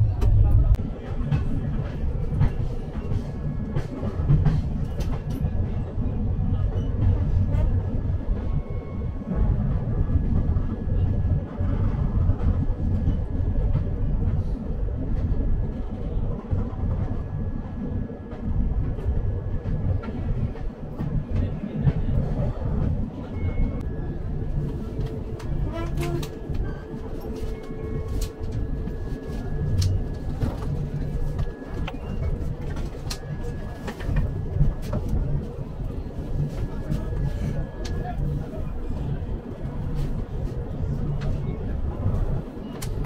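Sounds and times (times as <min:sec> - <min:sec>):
train rumbling on rails: 0:00.0 - 0:43.0.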